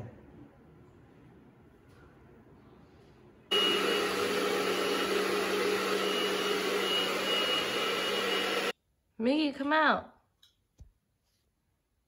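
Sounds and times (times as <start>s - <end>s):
carpet cleaner whirring: 3.5s - 8.7s.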